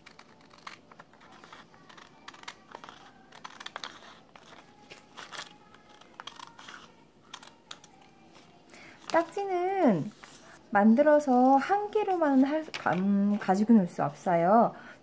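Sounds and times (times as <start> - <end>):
scissors snipping paper: 0.0 - 8.1
paper rustling and crinkling: 0.0 - 10.6.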